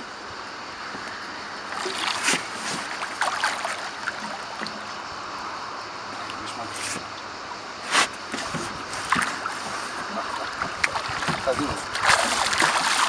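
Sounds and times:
water splashing against boat: 0:00.8 - 0:05.1, 0:06.1 - 0:13.0
fish thrashing at surface: 0:08.3 - 0:13.0.

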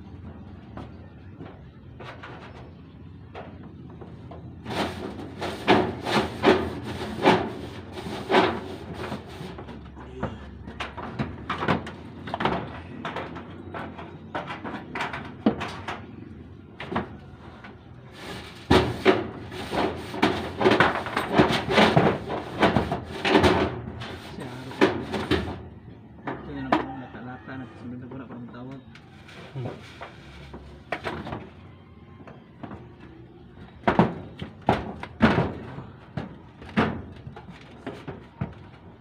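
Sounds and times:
metal roofing sheet clattering: 0:00.9 - 0:25.7, 0:33.6 - 0:39.0.

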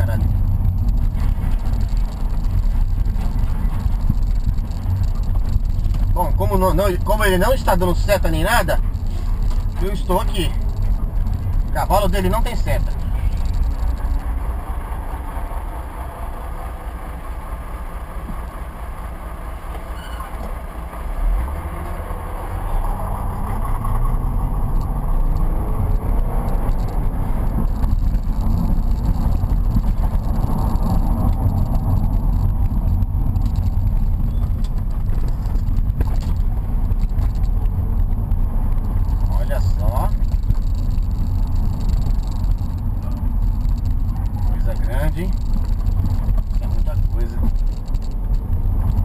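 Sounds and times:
car engine accelerating: 0:00.0 - 0:49.0
road rumble: 0:00.0 - 0:49.0.

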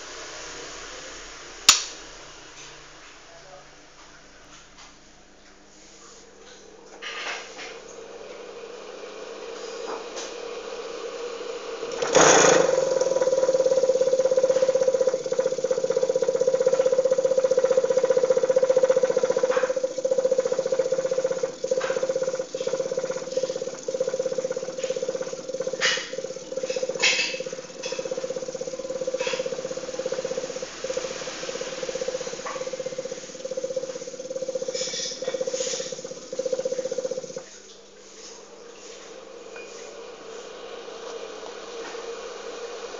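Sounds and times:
fan motor humming: 0:00.0 - 0:03.6, 0:06.2 - 0:42.9.

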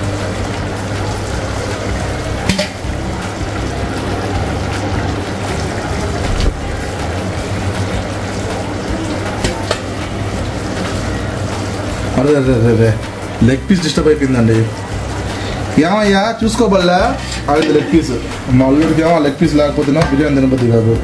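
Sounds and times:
pot bubbling hiss: 0:00.0 - 0:21.0.

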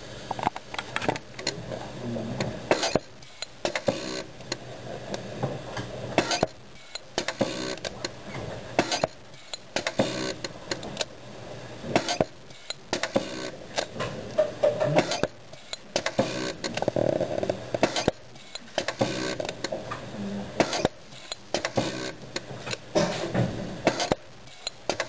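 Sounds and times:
packaging machine clicking and clattering: 0:20.6 - 0:25.0.

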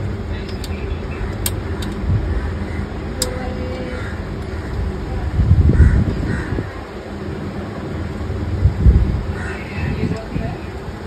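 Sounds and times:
low rumbling handling noise: 0:00.0 - 0:11.0
bird cawing: 0:02.3 - 0:05.0, 0:05.7 - 0:06.9, 0:09.3 - 0:09.9.

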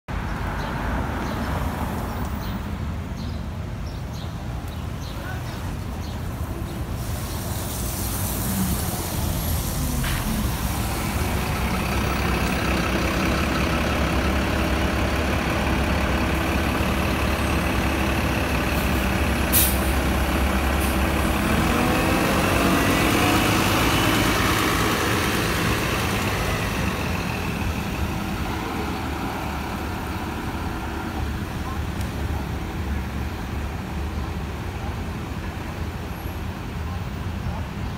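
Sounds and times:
bus engine rumbling: 0:00.1 - 0:37.9
air brake hiss: 0:19.5 - 0:20.0.

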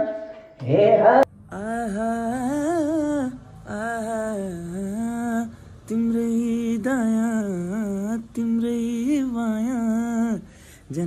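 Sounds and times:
man singing wordless melody: 0:00.6 - 0:11.0
man breathing: 0:10.4 - 0:10.9.

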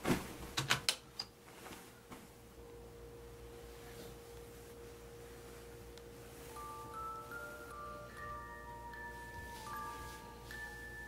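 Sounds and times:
pure tone drone: 0:02.5 - 0:11.0.

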